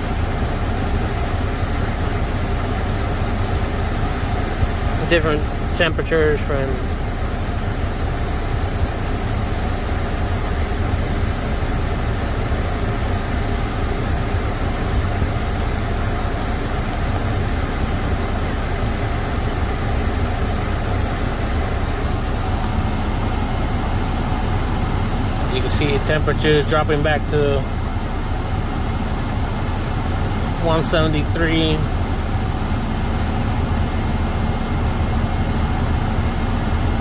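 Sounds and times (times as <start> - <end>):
diesel engine idling: 0.0 - 37.0.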